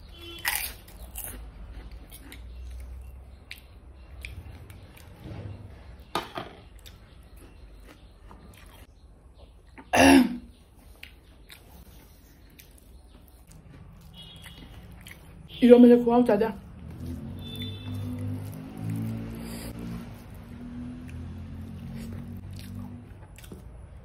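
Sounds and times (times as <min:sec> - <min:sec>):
chewing: 0:00.4 - 0:05.2, 0:06.8 - 0:09.9, 0:10.8 - 0:15.5, 0:16.6 - 0:24.0
person coughing: 0:09.9 - 0:10.5.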